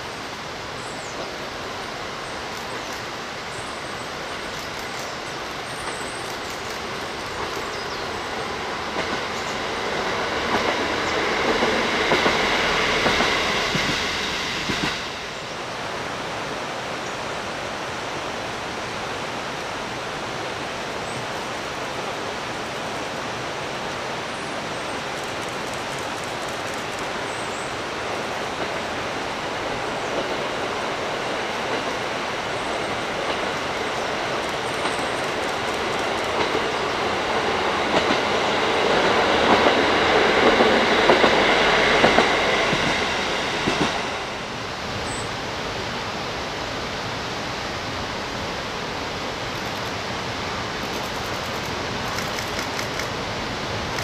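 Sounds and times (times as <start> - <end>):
diesel train passing: 0.0 - 54.0
steady rushing noise: 0.0 - 54.0.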